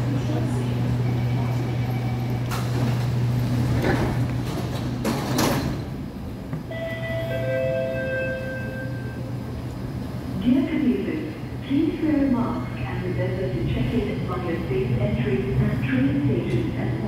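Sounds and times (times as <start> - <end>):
train hum: 0.0 - 17.0
train doors sliding shut: 2.3 - 7.2.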